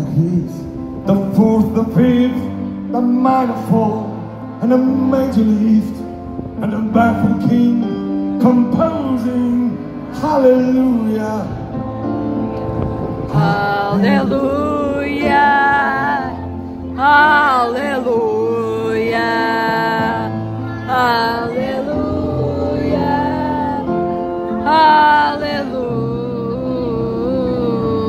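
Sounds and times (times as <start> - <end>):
audience noise: 0.0 - 28.0
live band playing: 0.0 - 28.0
person singing long wavering notes: 13.3 - 28.0.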